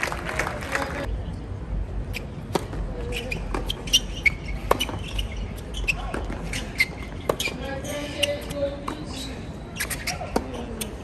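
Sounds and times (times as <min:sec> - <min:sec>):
racket hitting tennis ball: 0:04.6 - 0:05.2
tennis ball bouncing on court: 0:04.6 - 0:05.2.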